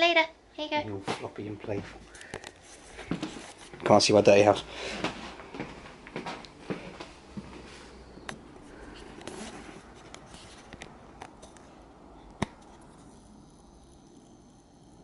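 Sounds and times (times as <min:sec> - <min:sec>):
fingers rubbing and tapping camera: 0:09.1 - 0:11.7.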